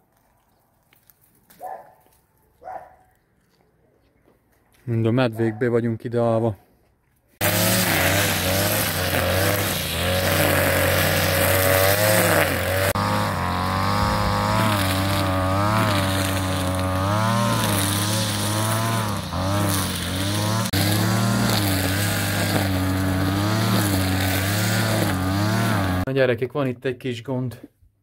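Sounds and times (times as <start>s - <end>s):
brush cutter engine running: 7.4s - 26.1s.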